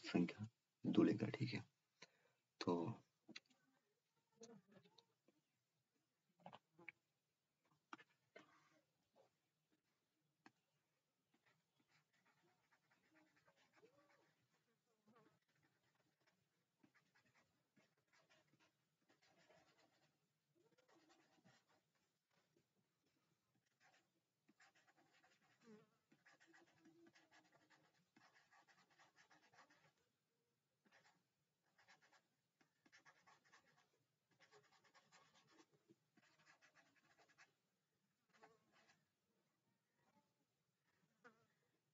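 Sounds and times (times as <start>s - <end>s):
stylus scratching on tablet: 7.9s - 8.9s, 11.2s - 30.2s, 30.8s - 39.2s.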